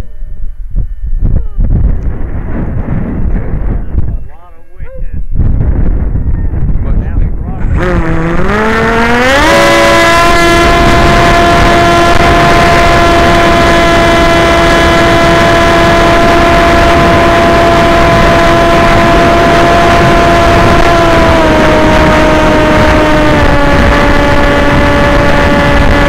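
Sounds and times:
wind rushing: 1.2s - 26.0s
model aircraft motor whine: 7.6s - 26.0s.

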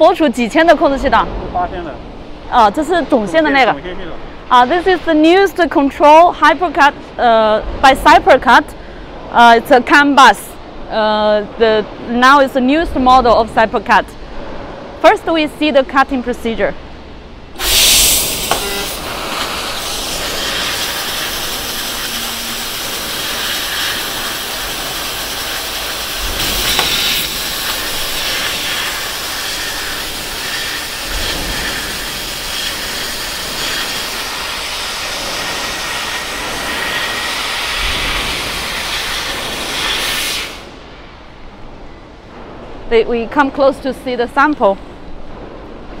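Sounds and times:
loud hiss of air jet: 17.6s - 40.9s.

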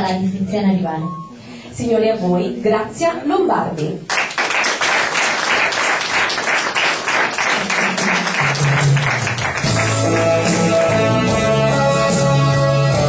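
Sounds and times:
audience applause: 4.1s - 11.2s
bass notes: 8.4s - 13.0s
guitar: 8.4s - 13.0s.

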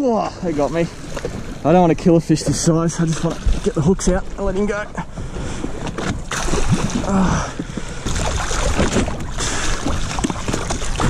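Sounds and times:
water splashing: 0.0s - 11.0s
fish thrashing: 5.2s - 11.0s.

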